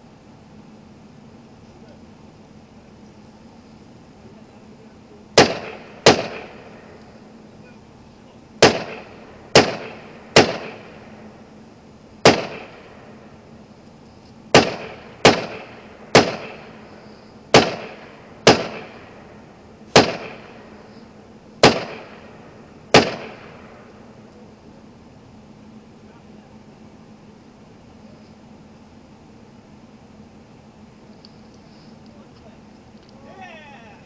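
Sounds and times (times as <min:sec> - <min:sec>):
rifle shots with echo: 0:05.4 - 0:07.0, 0:08.6 - 0:11.2, 0:12.2 - 0:13.2, 0:14.5 - 0:16.9, 0:17.5 - 0:20.8, 0:21.6 - 0:23.9.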